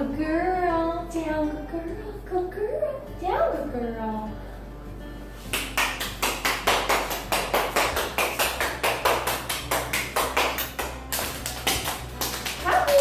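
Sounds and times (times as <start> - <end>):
hands clapping: 5.4 - 13.0.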